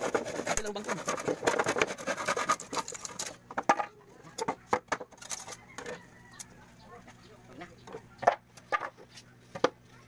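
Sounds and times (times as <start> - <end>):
handsaw cutting plywood: 0.0 - 3.2.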